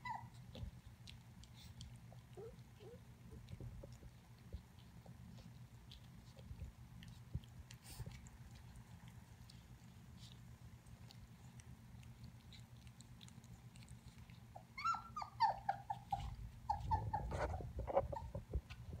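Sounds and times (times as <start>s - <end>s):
puppy whimpering: 0.0s - 0.8s, 1.4s - 4.2s, 12.5s - 18.6s
faint licking: 0.1s - 19.0s.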